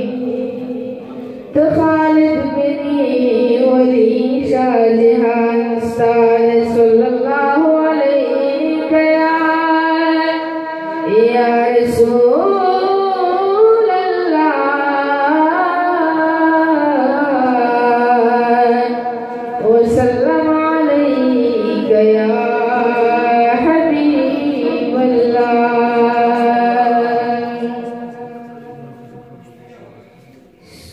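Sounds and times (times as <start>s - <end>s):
young man singing into a microphone: 19.4s - 28.7s.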